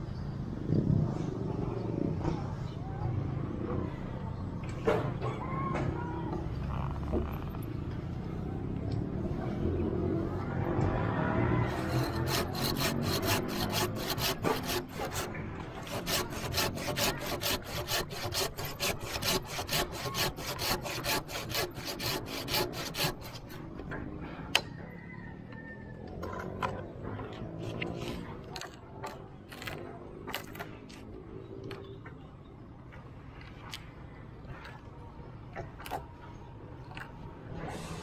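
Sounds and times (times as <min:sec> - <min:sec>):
handsaw rasping through branch: 0:11.7 - 0:23.7.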